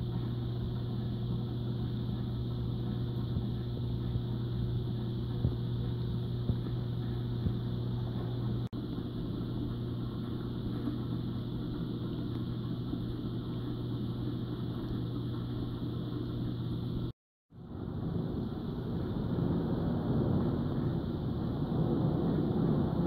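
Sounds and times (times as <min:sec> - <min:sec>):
aquarium pump hum: 0:00.0 - 0:23.0
water circulating: 0:00.0 - 0:23.0.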